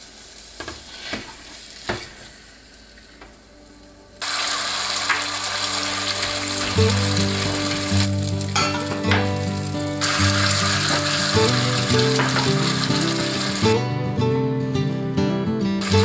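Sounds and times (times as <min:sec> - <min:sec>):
egg sizzling in a pan: 0:00.0 - 0:13.8
background music: 0:03.4 - 0:16.0.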